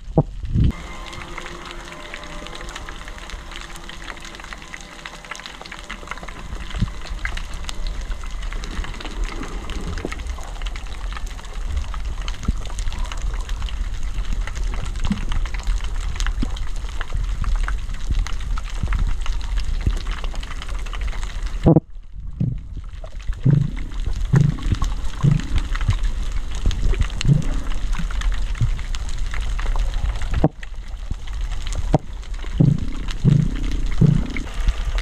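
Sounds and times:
deep underwater rumble: 0.0s - 35.0s
dense underwater crackling: 0.0s - 35.0s
sharp low knocks: 23.4s - 25.7s, 32.0s - 34.5s.

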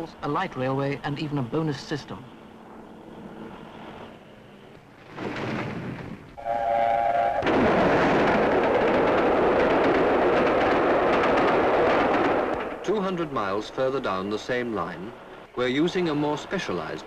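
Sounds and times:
steam whistle blast: 6.4s - 7.5s
steam train passing: 6.4s - 17.0s.

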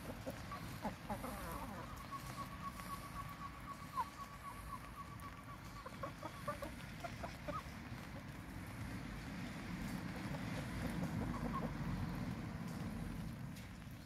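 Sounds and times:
chickens clucking: 0.0s - 8.5s, 9.9s - 12.3s.

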